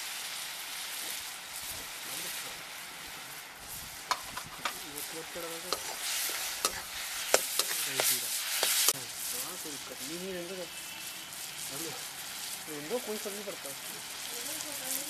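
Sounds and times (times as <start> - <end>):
onions sizzling in pan: 0.0 - 15.0.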